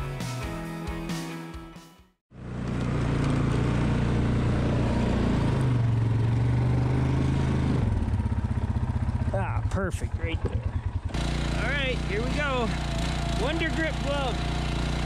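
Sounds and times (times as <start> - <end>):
music: 0.0 - 2.2
quad engine running: 2.3 - 15.0.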